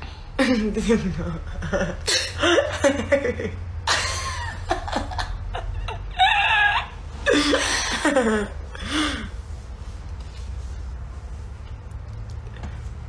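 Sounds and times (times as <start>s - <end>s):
women laughing: 0.6s - 9.0s.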